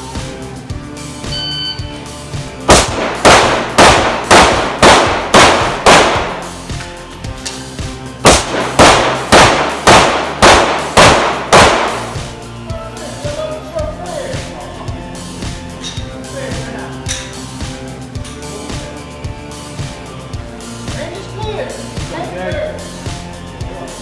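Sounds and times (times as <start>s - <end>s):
pistol shots: 2.7s - 6.6s, 8.2s - 12.2s.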